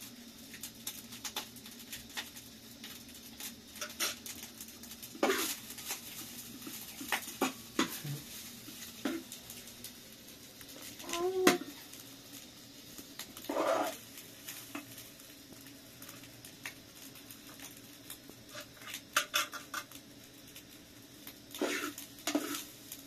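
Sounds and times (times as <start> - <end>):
metal spoon scraping frying pan: 5.2 - 5.6, 13.5 - 14.0, 21.5 - 22.7.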